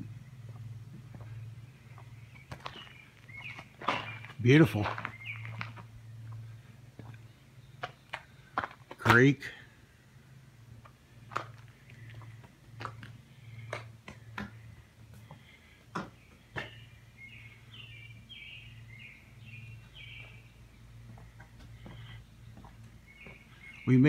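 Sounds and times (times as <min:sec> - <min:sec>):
footsteps on wooden deck: 0:00.4 - 0:09.0, 0:19.7 - 0:23.9.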